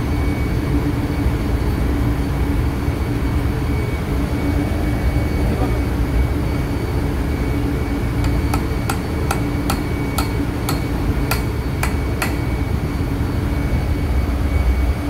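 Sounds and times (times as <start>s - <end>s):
low machinery hum: 0.0s - 15.0s
hammer tapping metal pipe: 8.2s - 12.5s.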